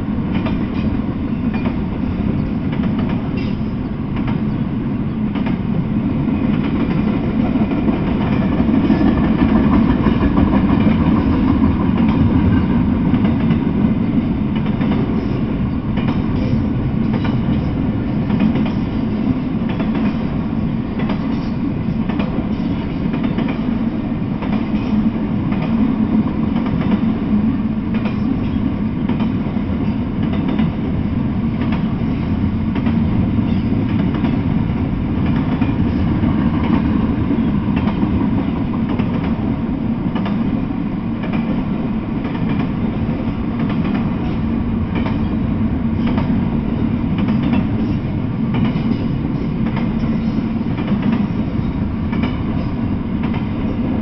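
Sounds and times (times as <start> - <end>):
freight train rumbling past: 0.0 - 54.0
wheels clacking over rail joints: 21.0 - 23.7, 47.1 - 53.8.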